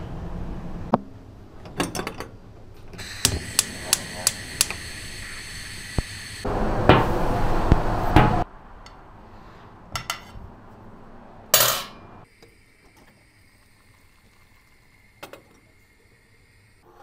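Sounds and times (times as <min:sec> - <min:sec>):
loud rushing noise: 0:06.2 - 0:12.2.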